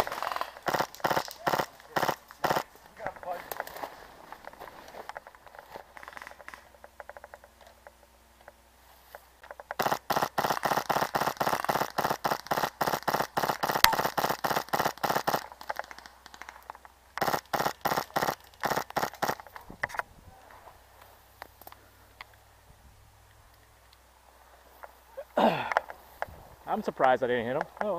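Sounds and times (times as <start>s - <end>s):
airsoft guns firing rapidly: 0.0s - 2.7s, 9.8s - 15.5s, 17.2s - 19.4s.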